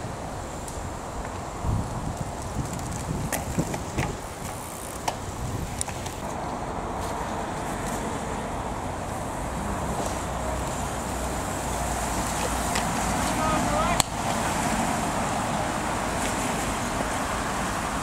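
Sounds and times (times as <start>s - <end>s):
bikes passing on mud: 0.0s - 18.0s
road traffic noise: 0.0s - 18.0s
bike clicks and rattles: 0.6s - 6.4s.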